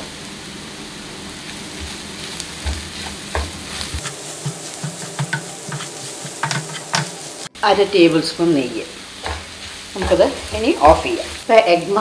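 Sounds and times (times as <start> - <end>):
food sizzling in frying pan: 0.0 - 12.0
spatula scraping and tapping pan: 1.8 - 7.4, 9.2 - 11.0.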